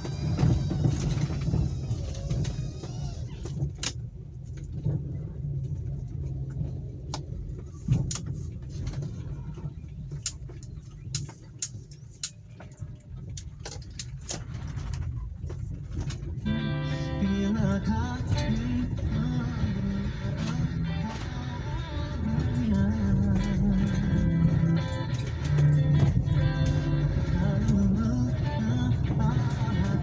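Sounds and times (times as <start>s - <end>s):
clicks and rattles: 0.0s - 16.4s
engine and tyres rumbling: 0.0s - 30.0s.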